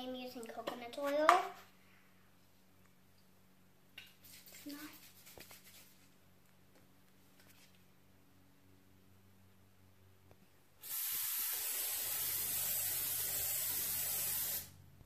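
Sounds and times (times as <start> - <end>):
cooking spray hissing: 10.8 - 14.8.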